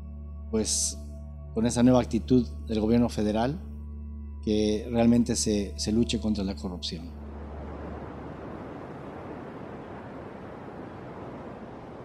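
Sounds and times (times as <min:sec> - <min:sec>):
ocean surf rushing: 0:07.2 - 0:12.0.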